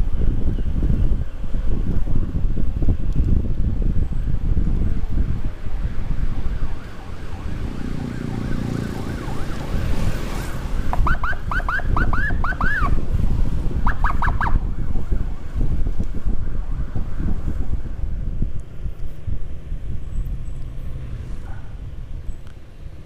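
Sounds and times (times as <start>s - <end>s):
motorcycle wind and road noise: 0.0s - 23.0s
electronic siren chirps: 6.3s - 10.0s, 11.0s - 13.0s, 13.8s - 15.6s.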